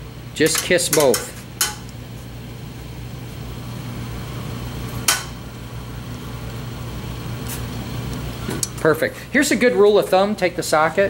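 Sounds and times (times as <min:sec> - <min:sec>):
steady low hum: 0:00.0 - 0:11.0
sharp metallic click: 0:00.4 - 0:02.0.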